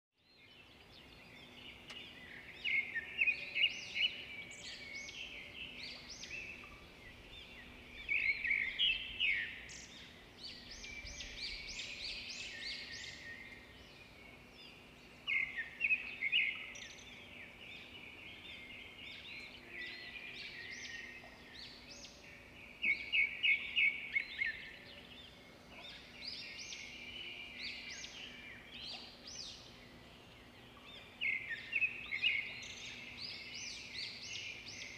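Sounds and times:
small birds chirping: 0.2s - 34.9s.

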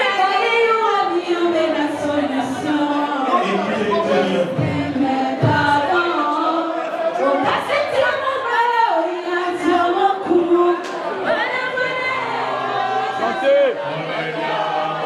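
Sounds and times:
woman singing into microphone: 0.0s - 13.3s
voices singing along: 0.0s - 15.0s.

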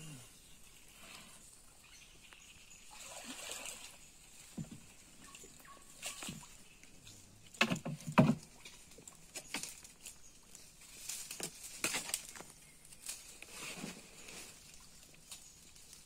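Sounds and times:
knocks against wooden boat: 7.6s - 8.4s.

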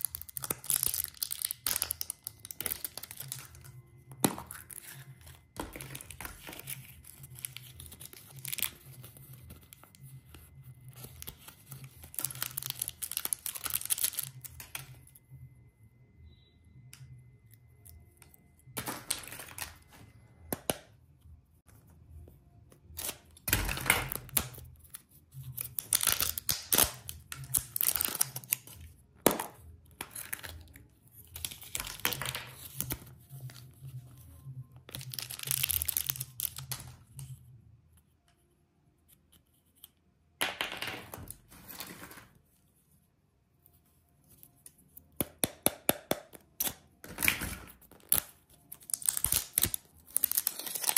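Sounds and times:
candy wrappers crinkling: 0.0s - 10.1s, 10.9s - 14.9s, 18.8s - 19.9s, 25.4s - 33.6s, 34.8s - 37.3s, 47.1s - 50.9s.

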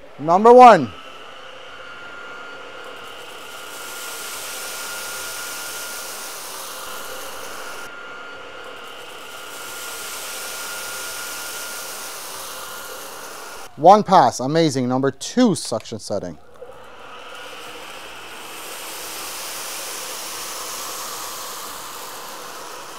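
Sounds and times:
vacuum motor whine: 0.0s - 13.8s, 16.5s - 22.9s.

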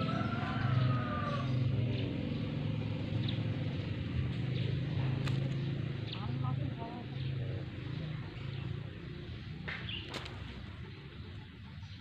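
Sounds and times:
low engine-like drone: 0.0s - 12.0s
hoe chopping and scraping soil: 9.7s - 10.8s.

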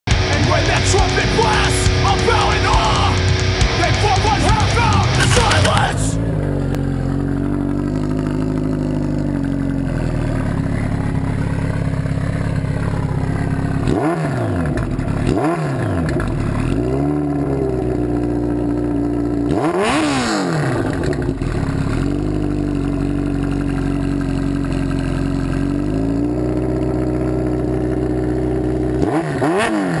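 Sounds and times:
motorcycle engine idling: 0.1s - 30.0s
quick throttle revs: 13.7s - 17.7s, 19.1s - 22.6s, 28.9s - 30.0s.

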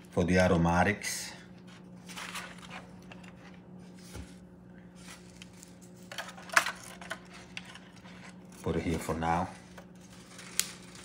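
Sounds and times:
steady low hum: 0.0s - 11.0s
foil pan crinkle: 5.0s - 11.0s
herb sprigs rustling: 7.2s - 11.0s.

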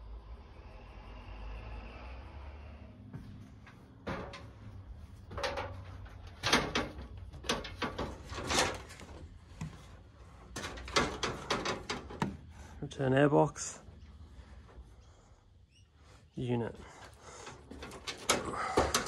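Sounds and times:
knocks and creaks of climbing: 3.0s - 19.0s.

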